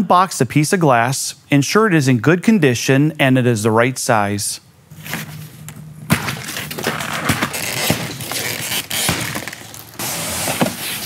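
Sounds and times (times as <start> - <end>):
cardboard crackling and scraping: 4.9 - 11.0
plastic strapping snapping: 5.2 - 10.0.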